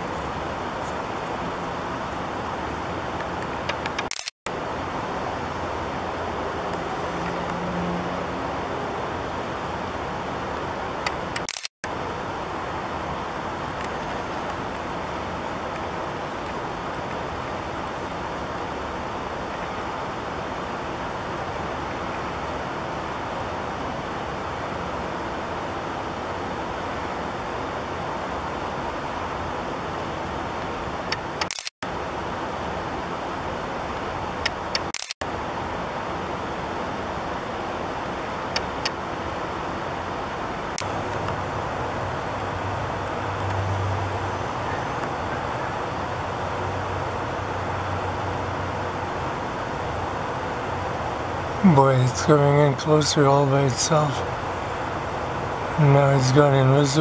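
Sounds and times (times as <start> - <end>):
outdoor background noise: 0.0 - 57.0
sharp clicks: 3.2 - 4.3, 34.4 - 35.2.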